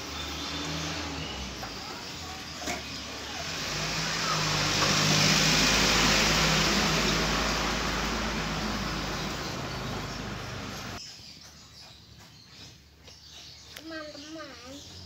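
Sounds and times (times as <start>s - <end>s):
vehicle engine passing by: 0.0s - 11.0s.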